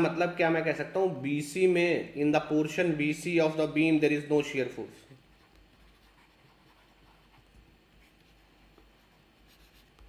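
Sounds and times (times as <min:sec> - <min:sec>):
stylus scratching on tablet: 0:05.2 - 0:10.0.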